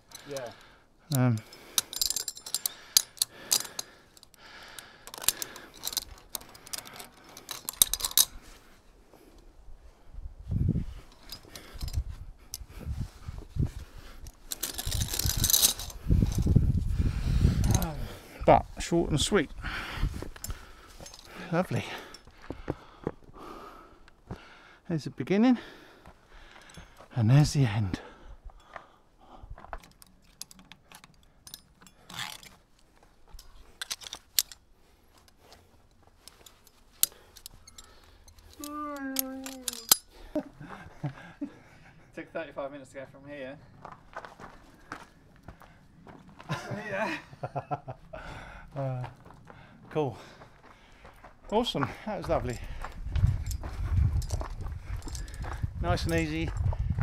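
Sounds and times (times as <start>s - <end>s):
metal carabiners clinking: 0.0s - 9.5s, 10.8s - 12.8s, 13.7s - 19.4s, 20.1s - 22.5s, 26.4s - 28.8s, 29.6s - 40.6s, 51.5s - 56.7s.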